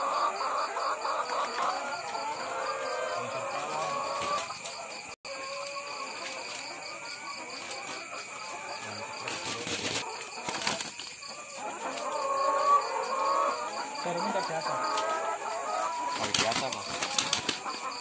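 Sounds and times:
wings flapping: 9.2 - 11.2, 16.1 - 17.8.

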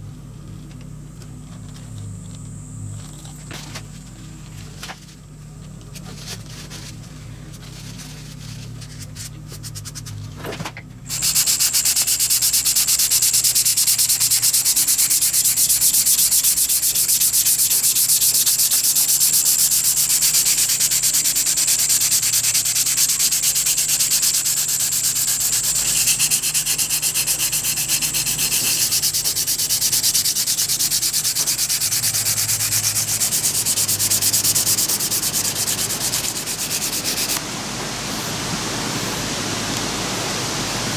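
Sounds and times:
sandpaper rubbing on wood: 7.7 - 10.2, 11.1 - 37.4.

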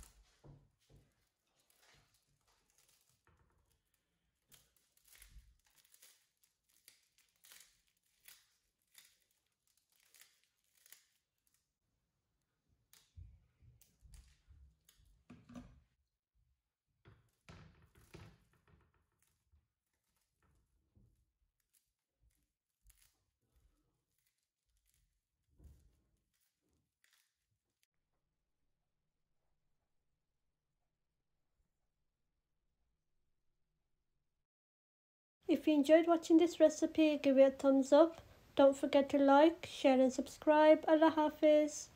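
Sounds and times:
puffed rice crackling and rustling: 1.2 - 11.8, 21.1 - 27.8.

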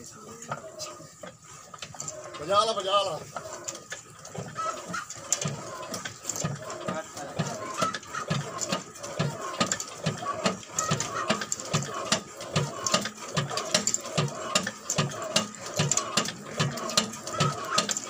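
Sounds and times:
flywheel turning with low thuds: 0.0 - 18.0
sharp mechanical clicks: 3.6 - 18.0.

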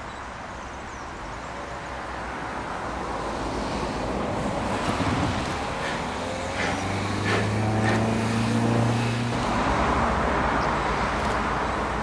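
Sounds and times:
rush of steam: 2.9 - 9.8
steam locomotive exhaust puffs: 3.4 - 8.4.

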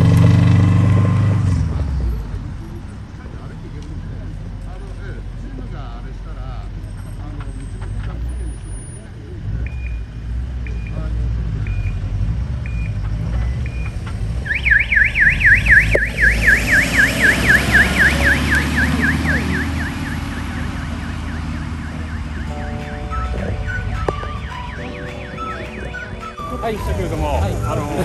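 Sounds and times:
low engine rumble: 0.0 - 28.0
fast yelping siren: 14.4 - 28.0.

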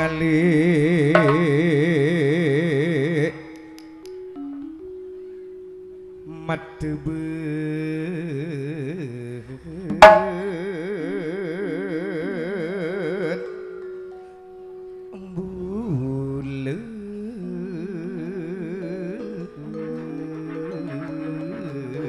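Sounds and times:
sharp percussion strikes: 1.2 - 1.9, 9.9 - 10.8
wavering vibrato note: 9.9 - 11.6.

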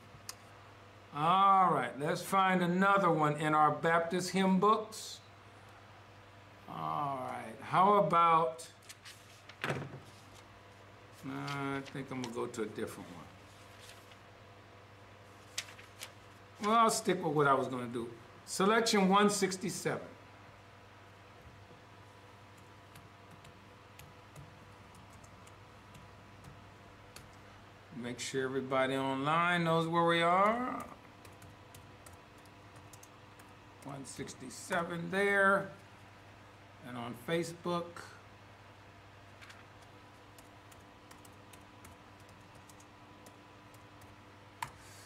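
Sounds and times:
low electrical hum: 0.0 - 45.0
keyboard typing: 22.6 - 27.4, 30.4 - 33.9, 39.4 - 44.8
typing on computer keyboard: 39.4 - 44.7.

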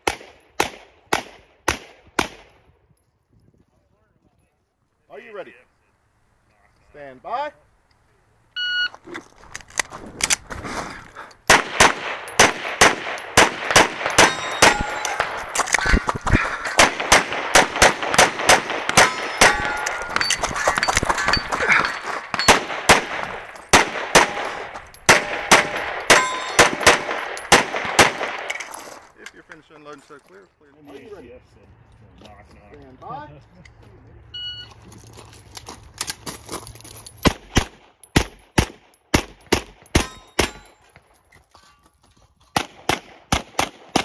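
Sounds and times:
rapid pistol shots: 0.0 - 2.5, 11.5 - 15.6, 16.7 - 20.2, 21.3 - 28.6, 37.3 - 40.6, 42.6 - 44.0
steel targets ringing: 14.1 - 15.5, 19.0 - 22.9, 23.5 - 27.5, 40.0 - 40.8.

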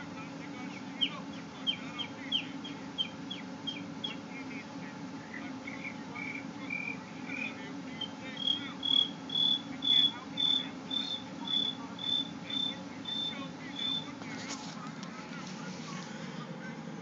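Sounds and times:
person whistling cricket chirps: 8.4 - 13.3.

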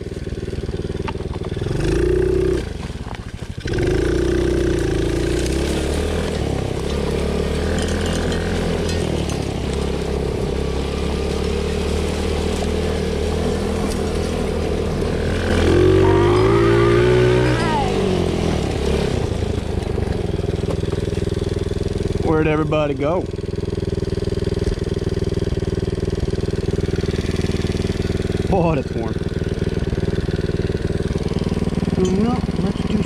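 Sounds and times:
atv engine revving: 0.0 - 33.0.

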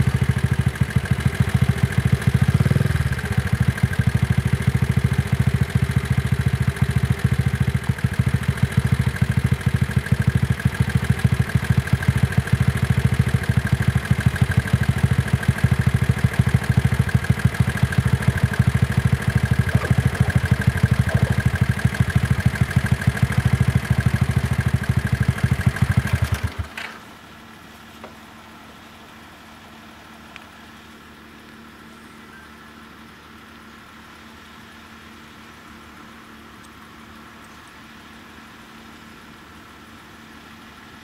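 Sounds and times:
car engine idling: 0.0 - 26.7.

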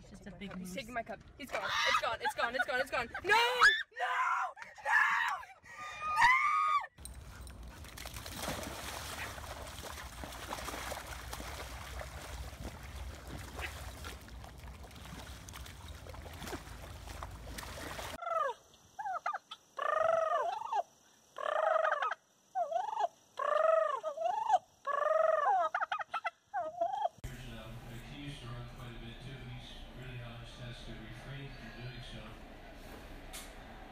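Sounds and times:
turkey gobbling: 18.2 - 20.7, 21.4 - 27.2.

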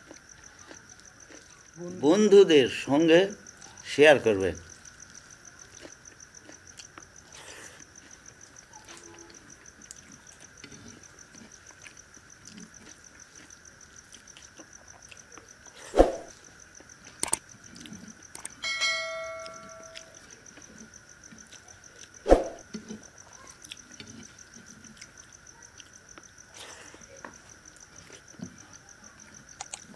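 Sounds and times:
person chewing: 0.0 - 1.7, 5.1 - 8.3, 9.8 - 15.8, 21.3 - 22.2
sharp smacks: 16.0 - 16.3
bell-like ringing tone: 18.6 - 20.2.

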